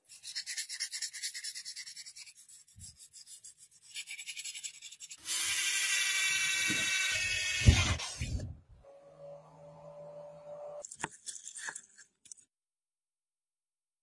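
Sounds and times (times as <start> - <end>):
power tool whining: 5.2 - 10.8.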